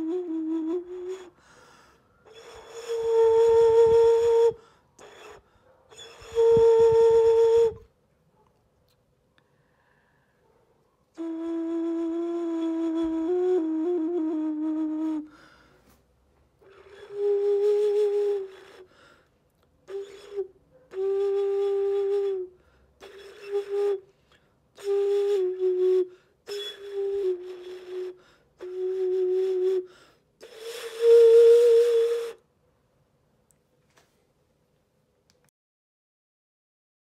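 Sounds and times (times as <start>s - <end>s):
breathy vessel flute notes: 0.0s - 7.9s, 11.2s - 15.9s, 16.6s - 32.5s.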